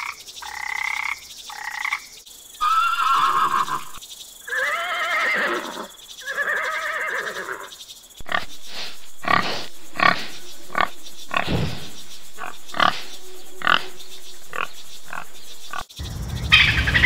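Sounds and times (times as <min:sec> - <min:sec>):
steady background hiss: 0:01.2 - 0:17.0
horse whinnying: 0:02.6 - 0:07.7
peccaries grunting: 0:08.2 - 0:15.8.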